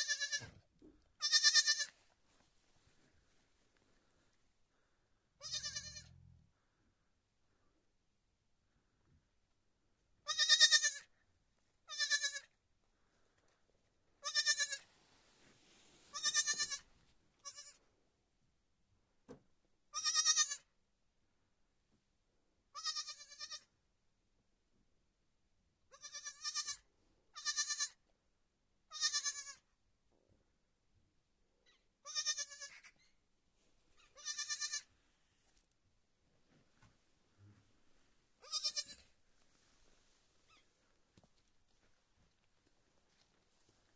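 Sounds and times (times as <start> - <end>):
lamb bleating: 0.0 - 0.5, 1.2 - 2.0, 5.4 - 6.2, 10.2 - 11.1, 11.9 - 12.6, 14.2 - 14.8, 16.1 - 17.8, 20.0 - 20.7, 22.8 - 23.7, 25.9 - 26.8, 27.4 - 28.0, 28.9 - 29.7, 32.0 - 33.0, 34.0 - 34.9, 38.4 - 39.1.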